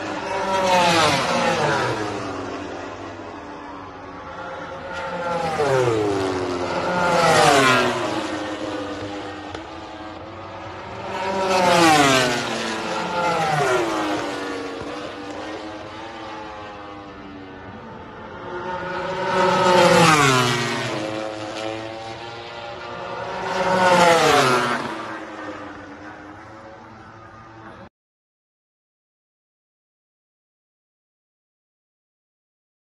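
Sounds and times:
racing motorcycles passing by: 0:00.0 - 0:27.9.

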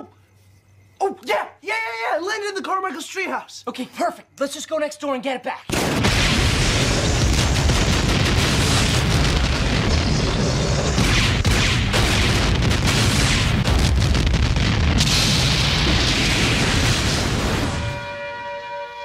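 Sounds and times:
explosion rumble with cracks: 0:05.7 - 0:18.0.

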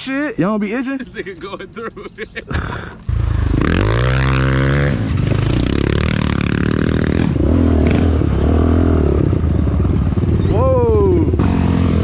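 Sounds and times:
quad clattering over rough ground: 0:01.0 - 0:02.6
atv engine accelerating: 0:03.1 - 0:12.0.

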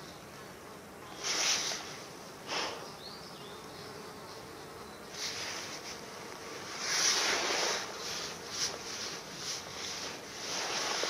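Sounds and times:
flying insects buzzing: 0:00.0 - 0:11.0
dry leaves rustling: 0:06.7 - 0:11.0.

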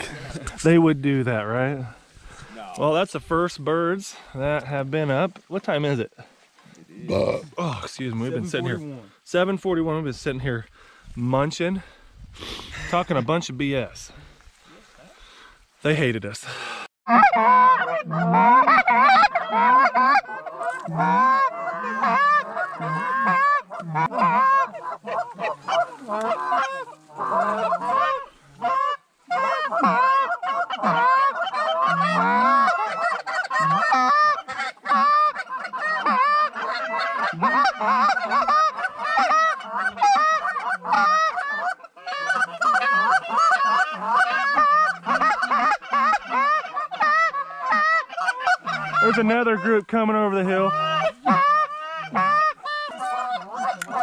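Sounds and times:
goose calls honking and clucking: 0:17.1 - 0:54.0.

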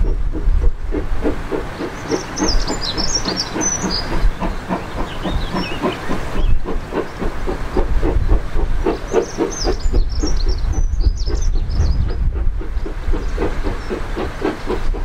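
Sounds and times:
low rumble: 0:00.0 - 0:15.0
steam locomotive chuffing: 0:00.0 - 0:15.0.

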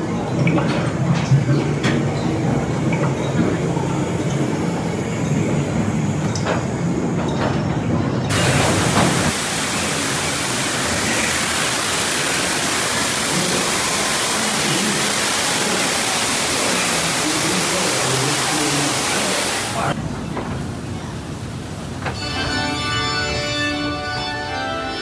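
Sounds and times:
train cars rumbling on track: 0:00.0 - 0:22.2
waterfall rushing: 0:08.3 - 0:20.0.

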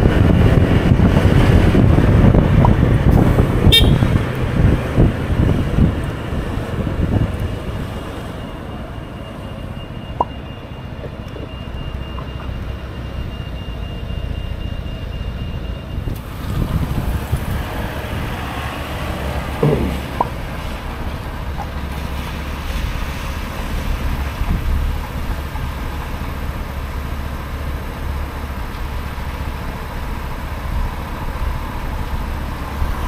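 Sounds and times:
wind on microphone: 0:00.0 - 0:08.2, 0:16.0 - 0:25.8
scooter engine: 0:16.1 - 0:22.9.

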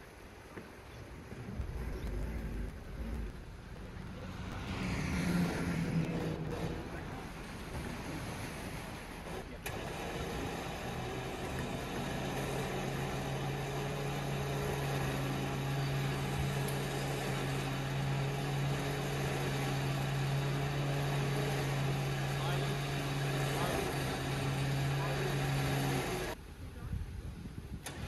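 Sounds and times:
engine idling: 0:01.1 - 0:04.6, 0:05.8 - 0:26.4.

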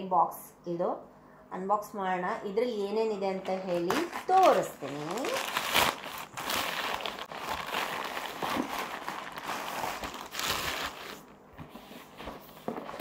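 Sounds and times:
plastic bag crinkling: 0:03.5 - 0:11.4.

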